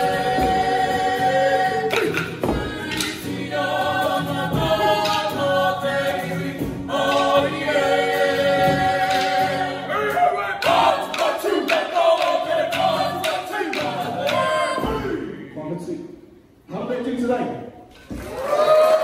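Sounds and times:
men and women singing in harmony: 0.0 - 15.5
acoustic guitar: 0.0 - 15.6
wooden sticks clacking: 1.9 - 3.2, 10.6 - 14.4.

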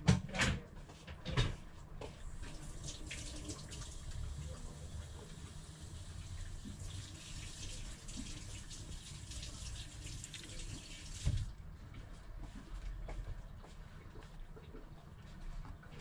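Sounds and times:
water running from tap: 2.2 - 11.5.

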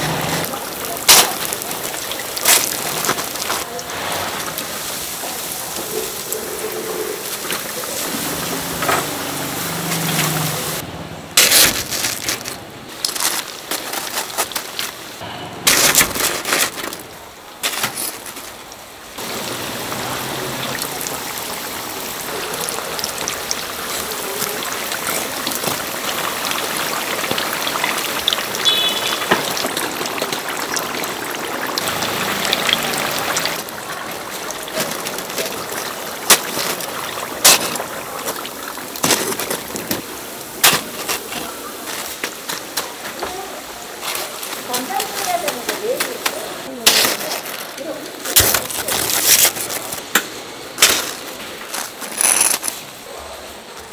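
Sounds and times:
food sizzling in frying oil: 0.0 - 10.8, 12.9 - 15.2, 18.2 - 52.9.

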